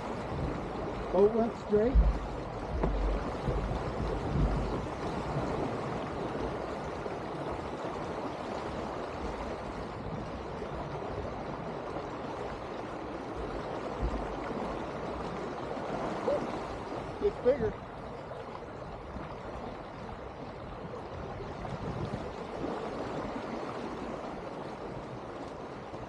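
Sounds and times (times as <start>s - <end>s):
low rumbles: 0.0s - 6.4s
water rushing along boat hull: 0.0s - 26.0s.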